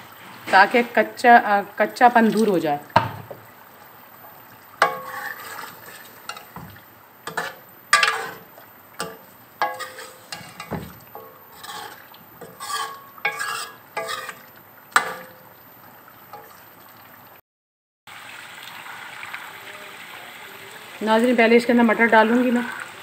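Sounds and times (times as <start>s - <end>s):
food frying: 0.0s - 17.4s, 18.1s - 23.0s
spoon scraping metal pot: 4.8s - 6.6s, 7.3s - 15.3s.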